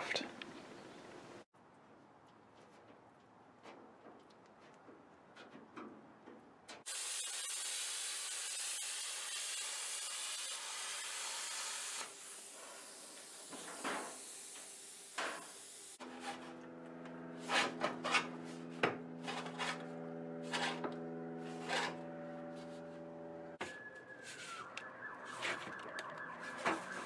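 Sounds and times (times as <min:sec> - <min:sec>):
plasma cutter hissing: 0:06.9 - 0:16.0
steel sheet scraping: 0:16.0 - 0:16.6, 0:17.3 - 0:23.0.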